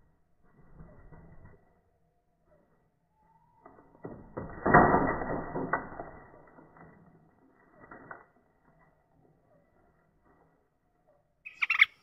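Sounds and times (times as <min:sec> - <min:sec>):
cage springing shut with clatter: 0:04.1 - 0:06.8.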